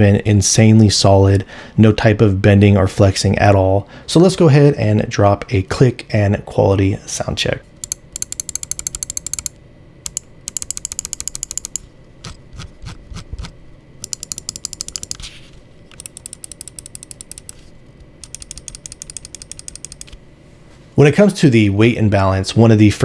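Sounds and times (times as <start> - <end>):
mouse buttons clicking: 7.8 - 9.5, 10.1 - 11.8, 14.0 - 15.2, 15.9 - 17.6, 18.2 - 20.2.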